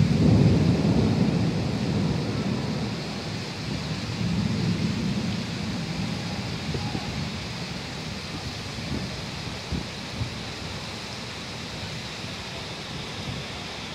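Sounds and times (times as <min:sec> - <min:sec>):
thunder rumbling: 0:00.0 - 0:10.8
wind and rain hiss: 0:00.0 - 0:13.9.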